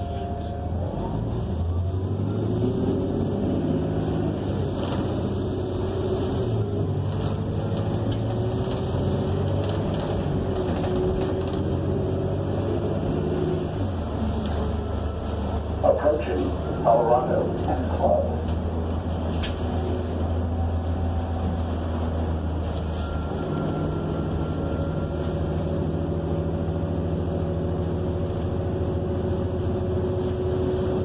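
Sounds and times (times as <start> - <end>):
bus engine running: 0.0 - 31.0.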